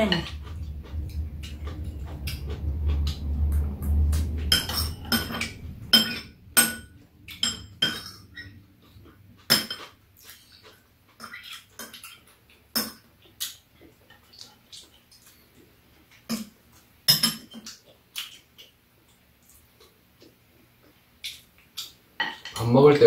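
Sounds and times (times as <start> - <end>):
low hum: 0.0 - 10.6
utensils clinking on bowls: 4.3 - 8.6.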